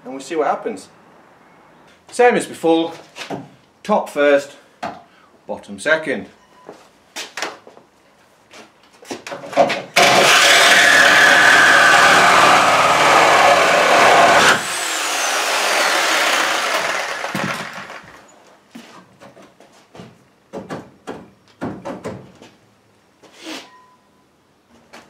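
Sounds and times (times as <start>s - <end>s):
reciprocating saw cutting metal: 10.0s - 18.1s.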